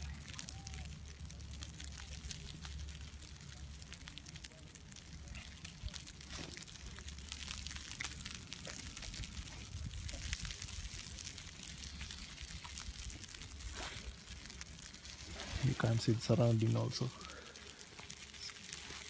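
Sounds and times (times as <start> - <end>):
faint crackles and ticks: 0.0 - 19.0
wind on microphone: 9.1 - 11.0.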